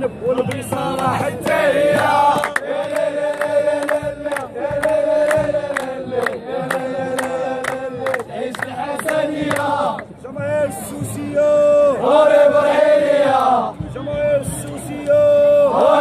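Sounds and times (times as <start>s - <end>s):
men chanting in unison: 0.3s - 13.8s, 14.4s - 16.0s
sharp handclaps: 0.4s - 10.1s.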